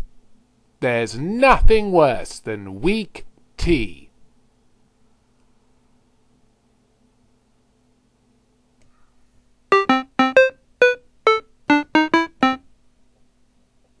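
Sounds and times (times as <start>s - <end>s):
electronic keyboard jingle: 9.7s - 12.6s.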